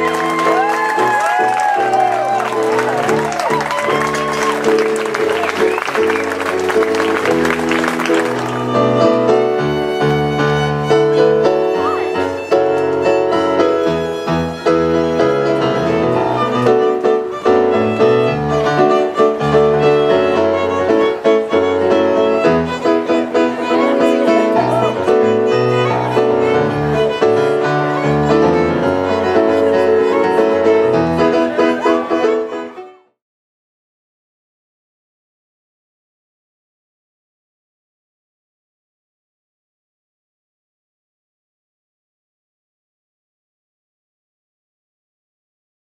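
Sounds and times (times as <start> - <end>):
applause: 0.0 - 8.8
violin and piano duet: 0.0 - 33.2.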